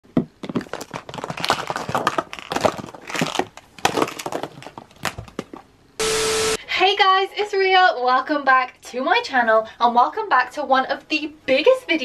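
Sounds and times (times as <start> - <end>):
plastic capsules crackling and snapping: 0.4 - 5.7.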